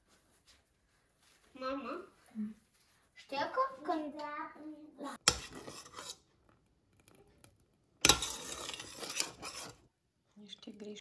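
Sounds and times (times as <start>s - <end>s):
dishes and cutlery clattering: 5.2s - 6.2s, 8.0s - 9.8s.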